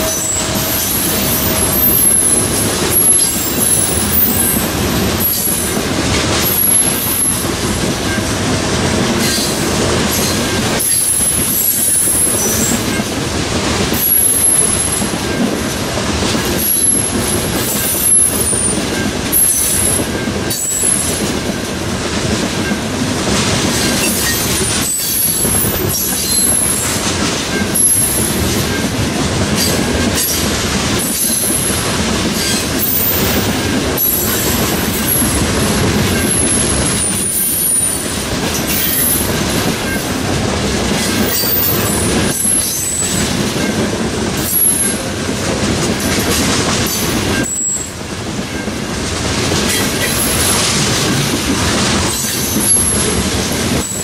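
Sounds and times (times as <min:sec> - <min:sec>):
train wheels on rails: 0:00.0 - 0:54.0
wheel flange squeals: 0:23.8 - 0:28.8, 0:47.4 - 0:47.9, 0:52.1 - 0:53.2.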